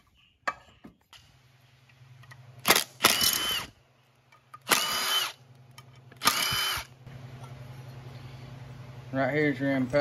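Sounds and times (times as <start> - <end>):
power driver motor whine: 6.2 - 7.0.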